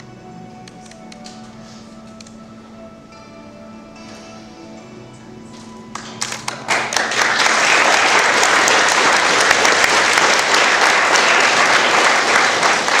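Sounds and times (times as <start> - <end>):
crowd applause: 5.9 - 13.0.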